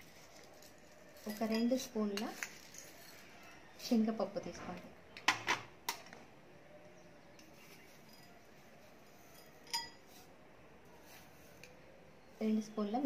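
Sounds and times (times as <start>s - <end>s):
spoon and bowls clinking: 0.0s - 3.6s, 7.4s - 10.3s.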